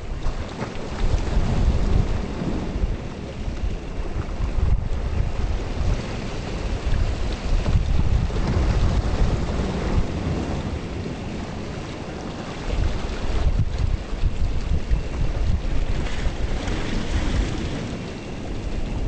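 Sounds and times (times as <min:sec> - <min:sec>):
gusty wind buffeting microphone: 0:00.0 - 0:19.0.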